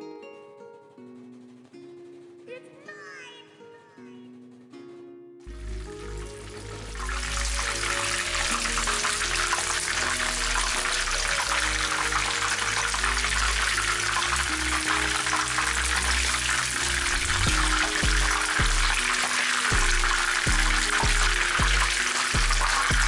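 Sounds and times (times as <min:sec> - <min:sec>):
background music: 0:00.0 - 0:23.0
chicken deep-frying in oil: 0:05.5 - 0:23.0.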